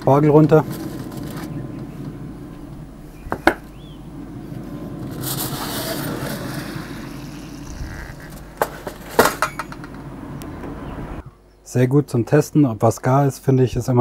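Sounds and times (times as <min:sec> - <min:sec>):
steady low hum: 0:00.0 - 0:12.1
foil scraping and rustling: 0:00.5 - 0:01.6, 0:04.6 - 0:09.2.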